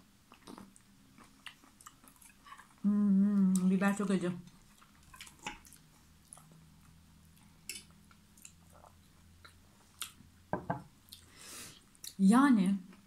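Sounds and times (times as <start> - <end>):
chewing: 0.3 - 2.8, 4.5 - 10.3.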